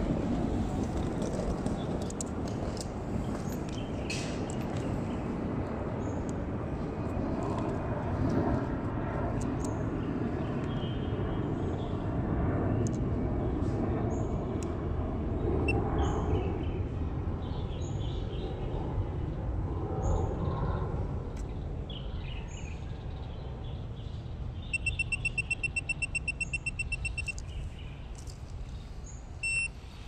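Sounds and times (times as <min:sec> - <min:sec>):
distant traffic rumble: 0:00.0 - 0:30.0
faint high chirps: 0:24.7 - 0:27.5, 0:29.4 - 0:29.8.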